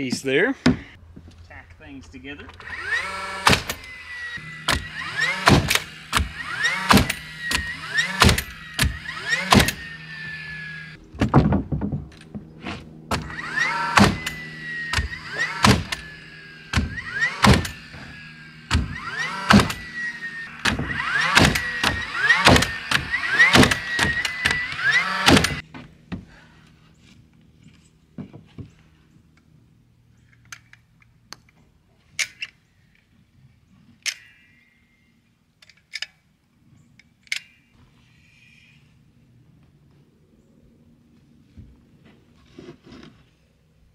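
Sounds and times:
nail gun motor whine: 2.5 - 26.4
nail gun firing: 2.8 - 3.9, 4.6 - 10.0, 13.1 - 16.1, 16.7 - 18.0, 18.7 - 19.9, 20.5 - 25.6.

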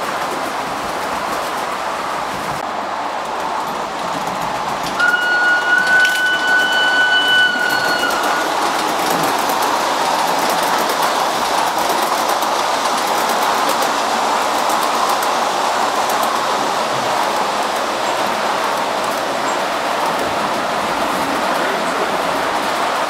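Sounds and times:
model train wheels rolling on track: 3.0 - 23.0
steady high tone: 5.0 - 8.8
clicks over rail joints: 7.8 - 15.4.

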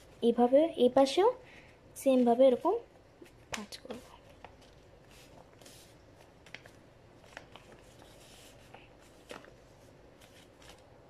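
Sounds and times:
paper rustling and crackling: 3.2 - 11.0.

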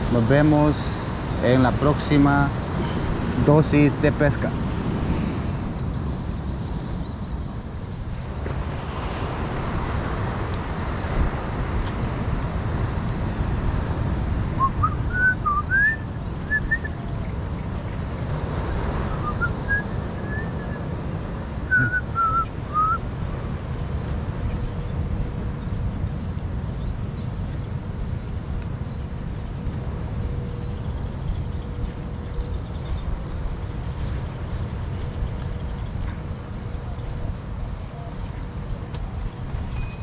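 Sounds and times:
wind on microphone: 0.0 - 40.0
surf: 8.1 - 27.5
person whistling a tune: 14.6 - 16.9, 19.2 - 20.8, 21.7 - 23.0.

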